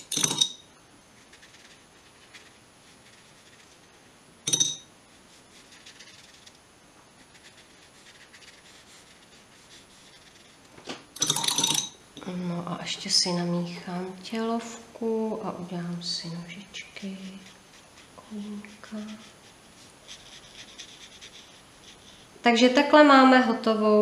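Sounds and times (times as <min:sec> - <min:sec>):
paintbrush clinking on water pot: 0:00.0 - 0:00.6, 0:04.5 - 0:04.9, 0:11.2 - 0:12.0
brush scratching on paper: 0:01.2 - 0:04.1, 0:05.1 - 0:06.6, 0:07.2 - 0:10.7, 0:16.4 - 0:22.4.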